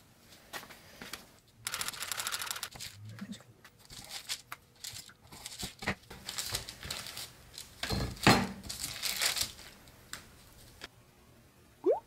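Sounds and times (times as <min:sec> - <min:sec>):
paper rustling and crinkling: 0:03.7 - 0:10.9.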